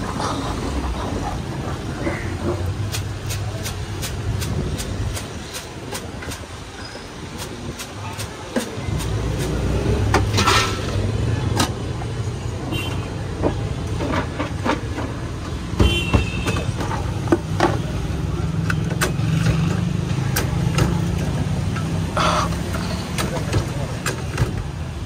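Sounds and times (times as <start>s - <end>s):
sharp clicks and knocks: 2.6s - 6.6s, 18.5s - 24.9s.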